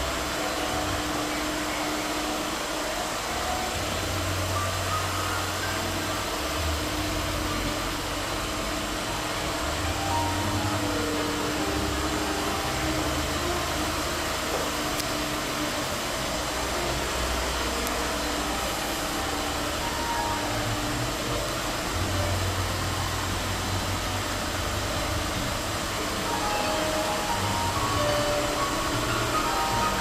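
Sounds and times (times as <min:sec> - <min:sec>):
low hum: 0:00.0 - 0:30.0.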